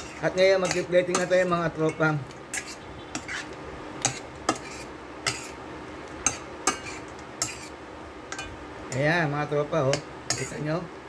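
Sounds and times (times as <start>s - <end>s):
metal spoon clinking in pot: 0.0s - 3.4s, 8.3s - 9.1s.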